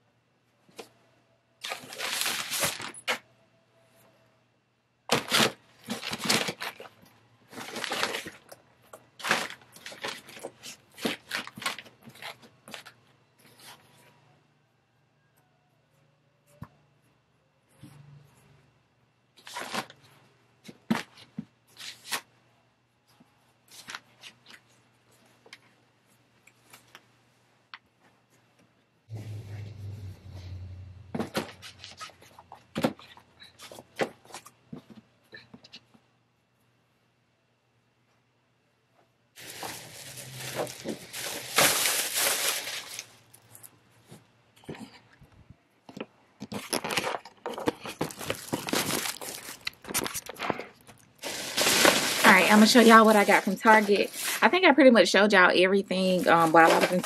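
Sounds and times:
plastic bag rustling: 1.6s - 3.2s, 5.1s - 13.9s, 39.4s - 43.7s, 46.5s - 57.0s
faint low hum: 2.9s - 6.2s, 24.5s - 46.4s
rustling and knocks of packing: 45.9s - 49.4s.

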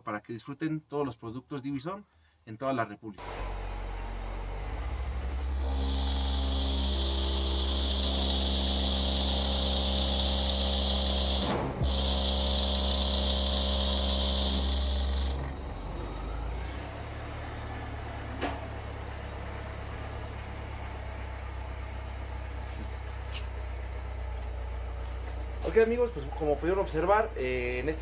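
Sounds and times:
low hum: 3.2s - 9.7s, 14.8s - 28.0s
high buzz: 3.2s - 16.6s.

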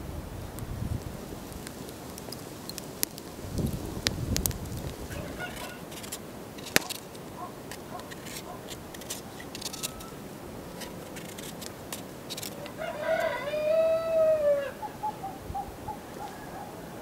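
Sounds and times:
onion skin crackling: 0.6s - 13.7s
rooster crowing: 5.1s - 5.8s, 9.7s - 10.2s, 12.5s - 17.0s
hen clucks: 5.1s - 5.9s, 12.6s - 16.8s.

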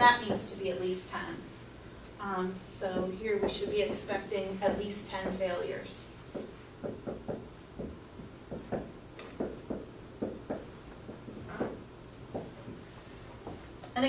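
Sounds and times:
marker writing on whiteboard: 2.9s - 5.7s, 6.3s - 13.8s.

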